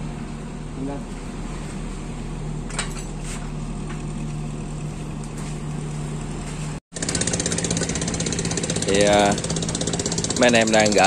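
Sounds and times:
motor humming: 0:03.4 - 0:11.0.

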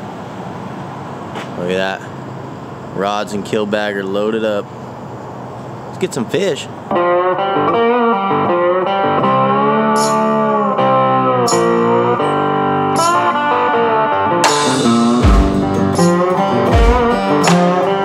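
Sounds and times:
guitar background music: 0:06.9 - 0:18.0
sharp hit: 0:14.4 - 0:18.0.

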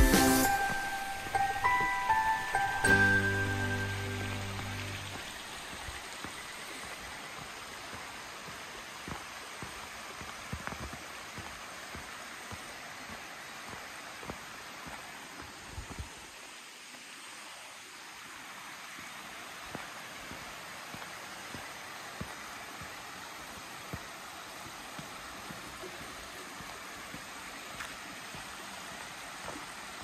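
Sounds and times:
footsteps on path: 0:00.0 - 0:16.6, 0:18.8 - 0:30.0
stream rushing over rocks: 0:00.0 - 0:30.0.

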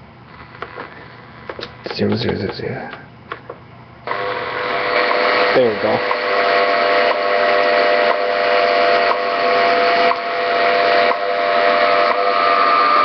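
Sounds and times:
radio static hiss: 0:00.0 - 0:10.3.

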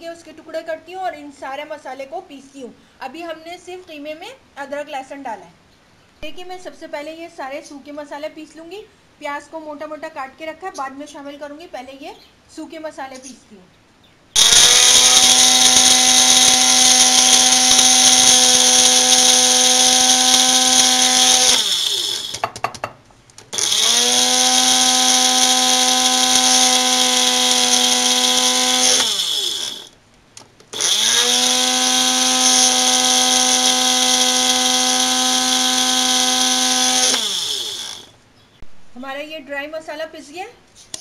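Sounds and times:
electric spice grinder whining: 0:14.4 - 0:22.6, 0:23.5 - 0:30.0, 0:30.7 - 0:38.1.

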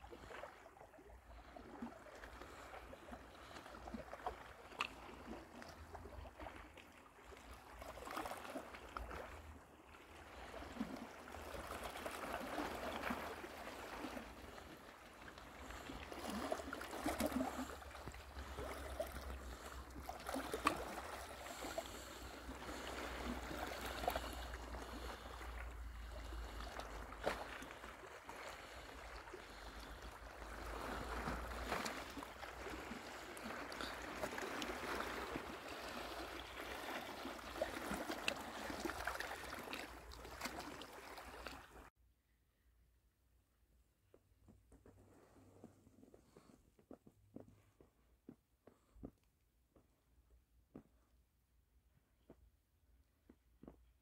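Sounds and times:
small waves lapping on rocks: 0:00.0 - 0:41.9.

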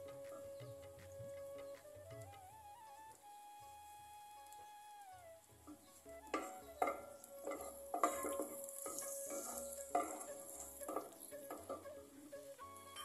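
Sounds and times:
spatula scraping pan bottom: 0:06.3 - 0:11.8
paste sizzling in hot oil: 0:06.8 - 0:11.7.

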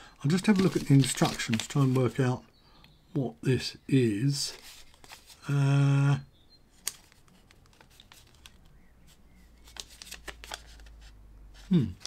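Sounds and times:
plastic bag crinkling: 0:00.2 - 0:02.2
man humming: 0:11.7 - 0:12.0.

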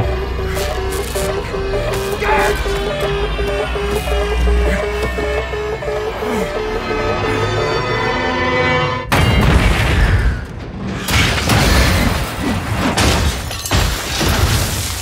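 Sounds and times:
film score with held tones: 0:00.0 - 0:14.7
crash and explosion booms: 0:09.1 - 0:15.0.

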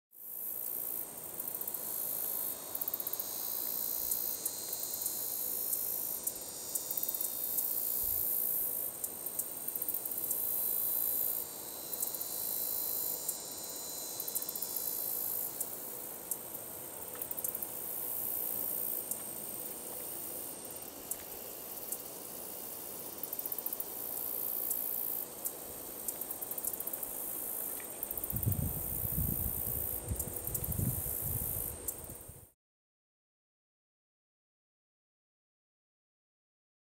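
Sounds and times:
katydid buzzing: 0:00.3 - 0:32.3
katydid quick ticks: 0:01.5 - 0:22.1, 0:23.2 - 0:32.2.

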